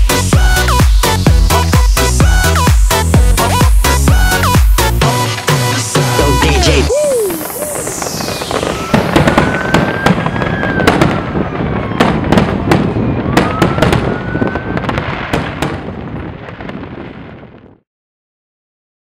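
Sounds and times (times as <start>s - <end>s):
fireworks bangs and crackling: 0.0s - 17.8s
whistling rockets: 6.9s - 17.0s.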